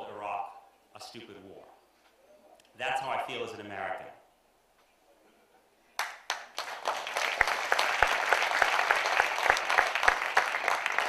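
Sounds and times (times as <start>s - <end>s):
audience applause: 6.0s - 11.0s.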